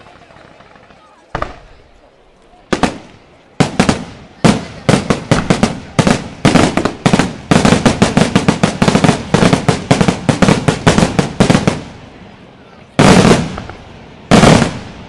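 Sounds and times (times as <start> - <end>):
fireworks bursting: 0.0 - 15.0.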